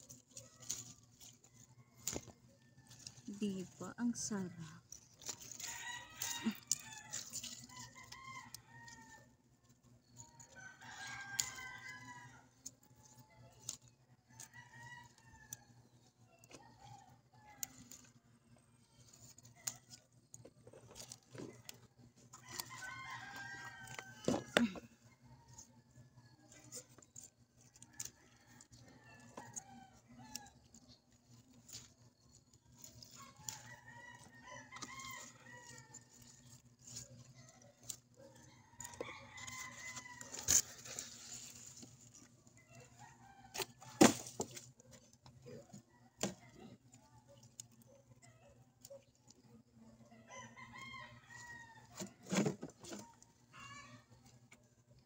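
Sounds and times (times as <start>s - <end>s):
rooster crowing: 5.3s - 9.4s, 10.4s - 12.6s, 22.3s - 25.8s, 32.8s - 41.2s, 50.2s - 54.2s.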